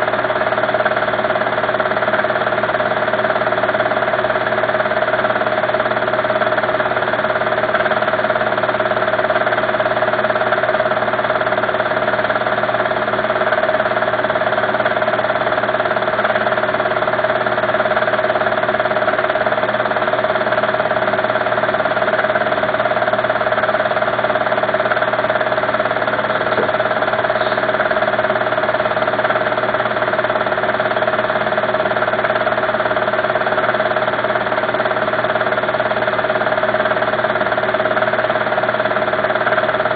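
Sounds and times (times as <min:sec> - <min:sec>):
steady motor drone: 0:00.0 - 0:39.9.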